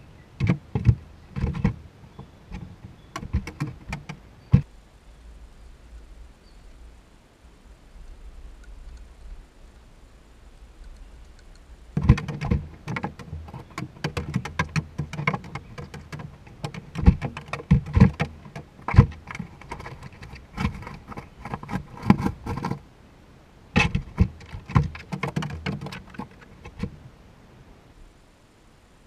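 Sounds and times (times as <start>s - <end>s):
squirrel claws scrabbling on wood: 0.4s - 4.7s, 10.8s - 22.8s, 23.8s - 27.0s.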